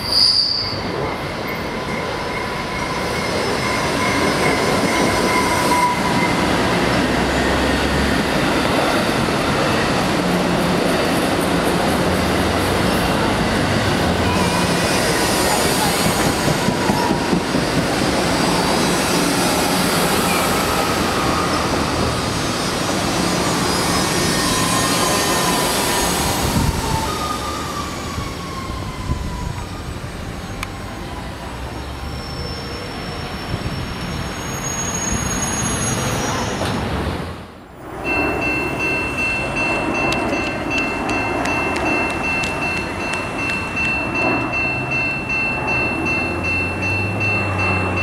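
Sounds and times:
wheel squeals: 0:00.0 - 0:07.9, 0:32.0 - 0:36.8
train rolling past: 0:00.0 - 0:48.0.

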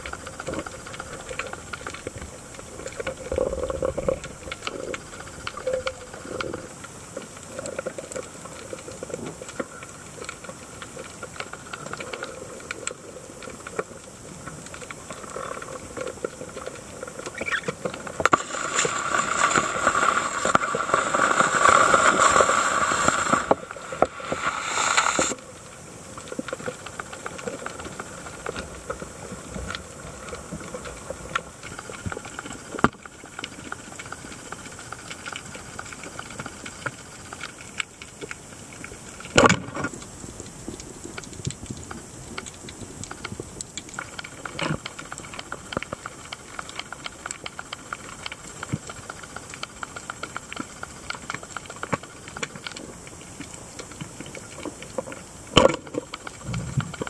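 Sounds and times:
fine crackling clicks: 0:00.0 - 0:57.0
underwater hiss: 0:00.0 - 0:57.0
underwater rushing: 0:00.0 - 0:57.0.

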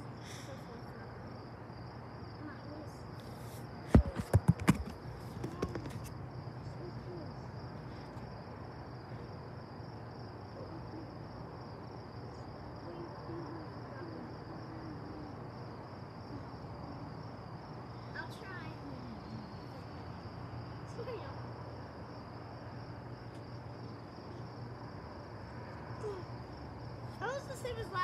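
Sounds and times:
insects chirring: 0:00.0 - 0:28.0
sharp knocks: 0:03.9 - 0:06.0.

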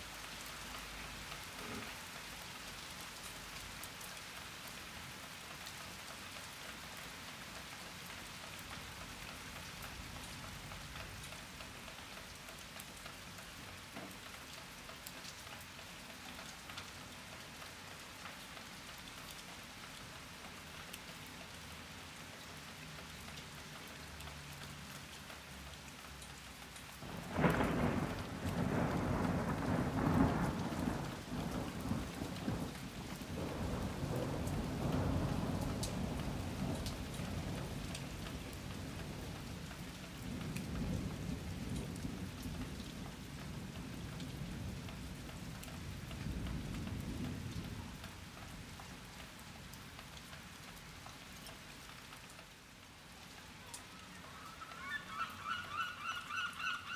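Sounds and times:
steady rain falling: 0:00.0 - 0:56.9
thunder clap and rumble: 0:27.0 - 0:39.5.

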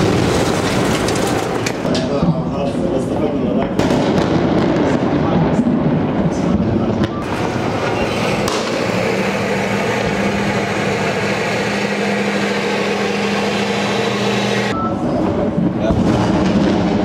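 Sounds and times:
clattering noise: 0:00.0 - 0:02.1
tank engine humming: 0:07.2 - 0:14.8.

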